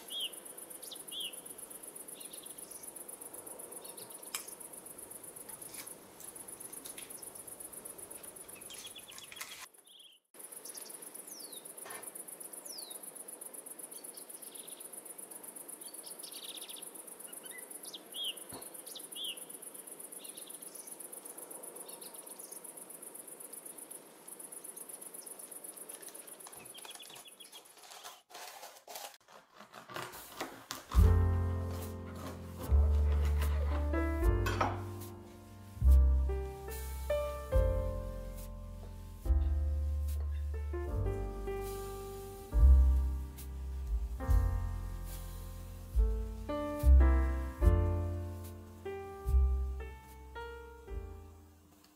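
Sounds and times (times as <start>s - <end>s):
bird chirps: 0.0s - 3.1s, 8.4s - 11.7s, 15.8s - 21.1s
insects chirping: 0.0s - 28.2s, 31.0s - 51.6s.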